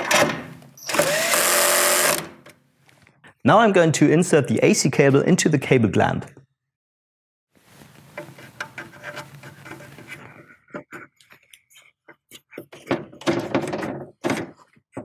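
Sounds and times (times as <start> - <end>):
scrapes clicks and knocks: 8.2 - 15.0.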